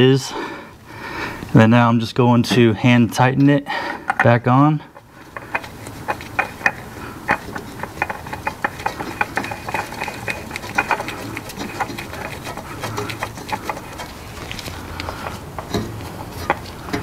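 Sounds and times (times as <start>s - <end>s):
oil filter clicking and rubbing: 3.9s - 17.0s.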